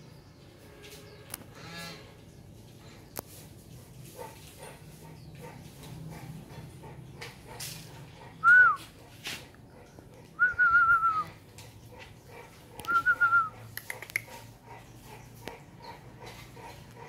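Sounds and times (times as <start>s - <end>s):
person whistling: 8.4s - 8.8s, 10.4s - 11.3s, 12.9s - 13.5s.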